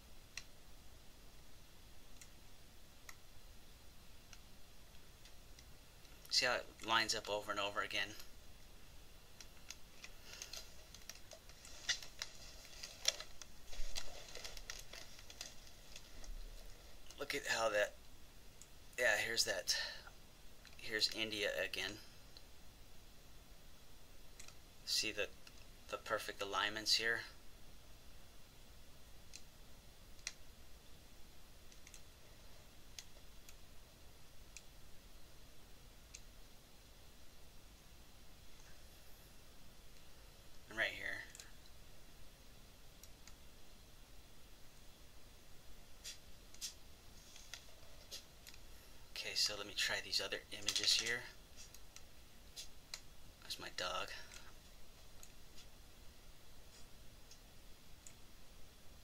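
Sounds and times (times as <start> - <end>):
faint steady hiss: 0.0 - 59.0
computer mouse clicking: 9.4 - 13.5, 24.4 - 24.6, 30.2 - 30.4, 31.7 - 32.1, 46.0 - 48.6
computer clicking: 24.4 - 24.6, 31.7 - 32.1.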